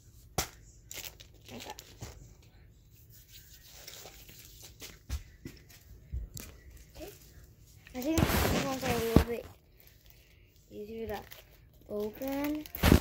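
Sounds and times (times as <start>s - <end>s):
plastic wrapper crinkling and tearing: 0.9s - 2.0s, 7.9s - 13.0s.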